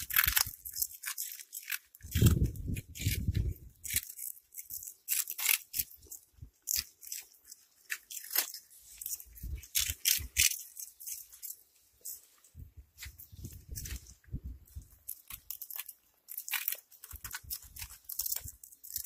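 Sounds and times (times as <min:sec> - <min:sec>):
cats crunching food: 0:00.0 - 0:12.4, 0:13.0 - 0:19.0.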